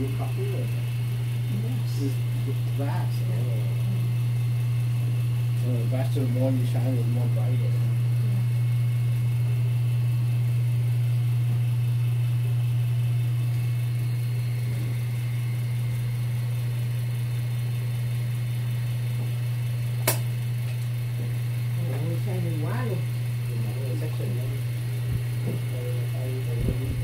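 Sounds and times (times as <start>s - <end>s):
low machinery hum: 0.0s - 27.0s
sharp click: 20.0s - 20.9s.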